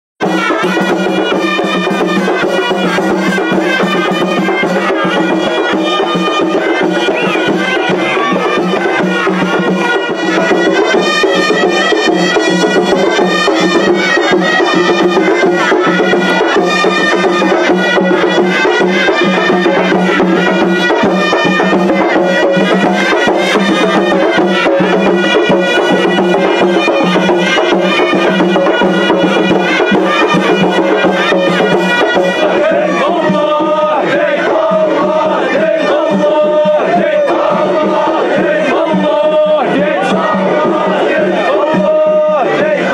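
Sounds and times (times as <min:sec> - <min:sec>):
drums and percussion: 0:00.2 - 0:42.9
reed pipes melody: 0:00.2 - 0:42.9.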